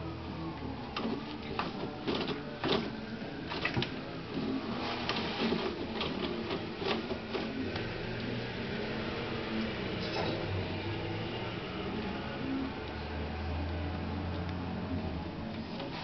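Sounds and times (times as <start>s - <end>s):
toilet paper ripping and rustling: 1.0s - 7.9s.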